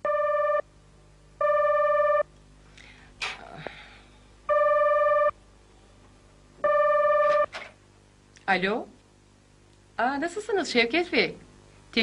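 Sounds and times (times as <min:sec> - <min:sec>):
electronic telephone ringing: 0:00.0 - 0:00.7, 0:01.4 - 0:02.3, 0:04.5 - 0:05.4, 0:06.6 - 0:07.5.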